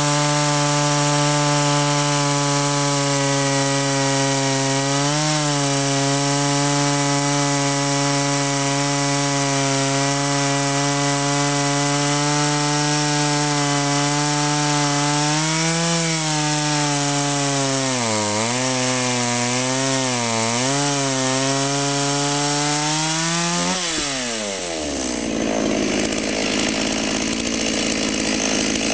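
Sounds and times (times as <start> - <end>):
chainsaw cutting log: 0.0 - 28.9.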